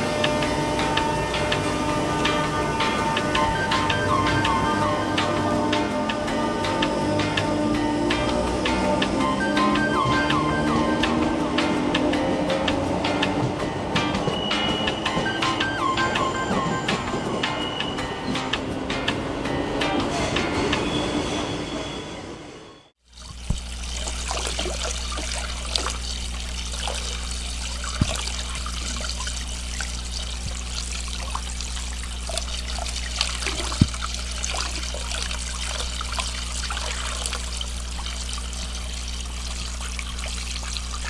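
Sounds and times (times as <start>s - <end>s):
water trickling in stream: 23.0s - 41.0s
sharp splashes: 23.1s - 41.0s.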